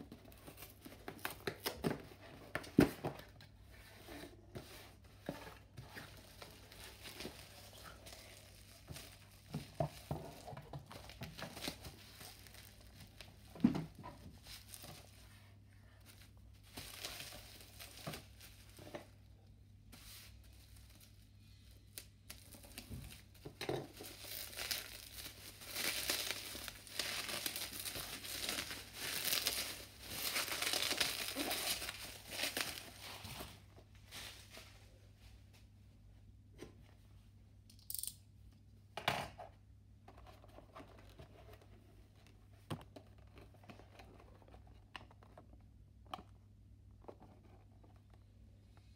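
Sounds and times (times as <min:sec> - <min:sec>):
bubble wrap crinkling and tearing: 0:06.1 - 0:13.5, 0:16.0 - 0:19.0, 0:20.0 - 0:33.6.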